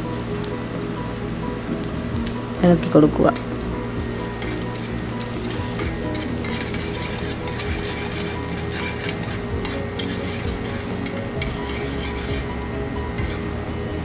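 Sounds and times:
background music: 0.0s - 14.0s
onions sizzling in hot oil: 0.0s - 14.0s
metal spoon scraping a pan: 3.3s - 13.6s.

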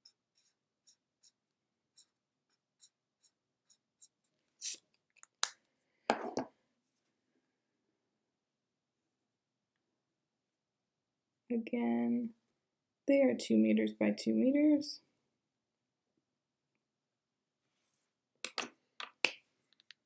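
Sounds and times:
highlighter rubbing on paper: 0.0s - 4.8s.

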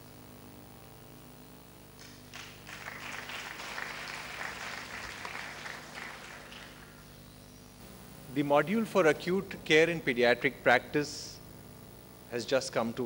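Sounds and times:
electrical hum: 0.0s - 13.0s
audience applauding: 2.0s - 7.1s.

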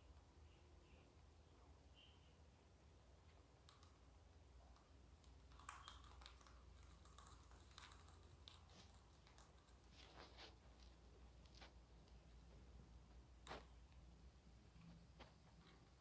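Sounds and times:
rabbit chewing dry hay: 3.6s - 16.0s.

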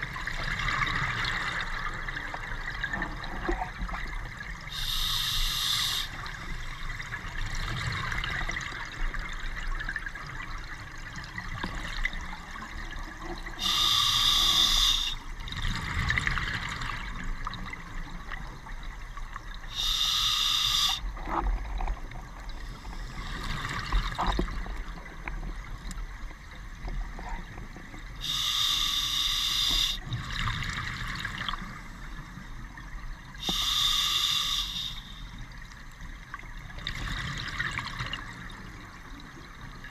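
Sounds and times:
regulator inhale hiss: 4.7s - 6.3s, 13.6s - 15.2s, 19.7s - 21.0s, 28.2s - 30.0s, 33.4s - 35.3s.

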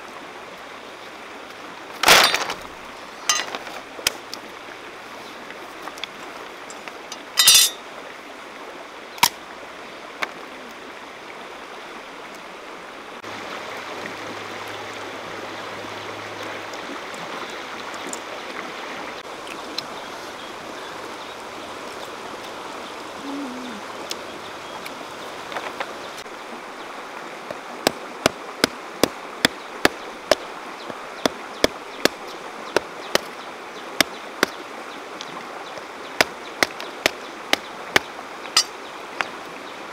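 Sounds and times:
stream rushing over rocks: 0.0s - 39.9s
tool striking pods on stones: 3.3s - 3.8s, 7.1s - 7.8s, 36.2s - 38.8s.

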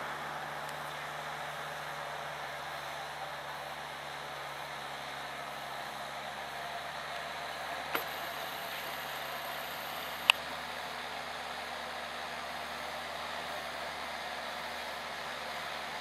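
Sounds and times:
tractor diesel engine under load: 0.0s - 16.0s
sharp click: 7.9s - 9.0s.

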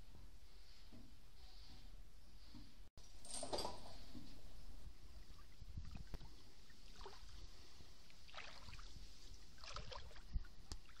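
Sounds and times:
wind rumble on microphone: 4.8s - 6.4s
water sounds of slow stream: 5.0s - 11.0s.

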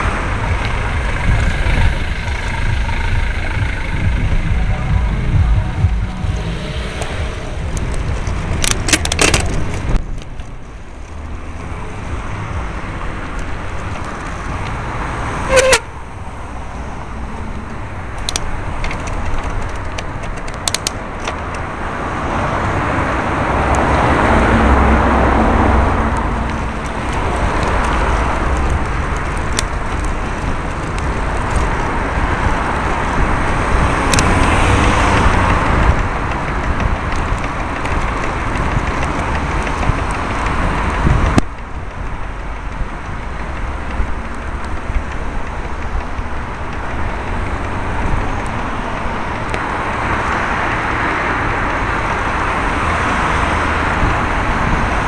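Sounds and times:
cars passing close by: 0.0s - 55.0s
low road rumble: 0.0s - 55.0s
bike clicks and knocks: 6.8s - 11.5s, 12.9s - 14.8s, 17.6s - 21.8s, 26.0s - 55.0s.

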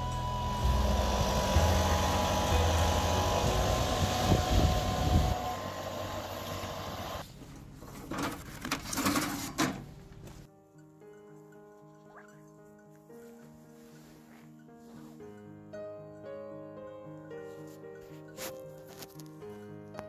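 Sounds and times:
leaf blower running: 0.0s - 7.2s.

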